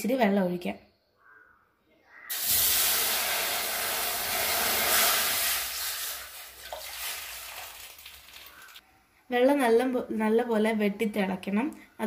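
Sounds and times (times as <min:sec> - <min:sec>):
water hissing on hot metal: 0:02.3 - 0:08.8.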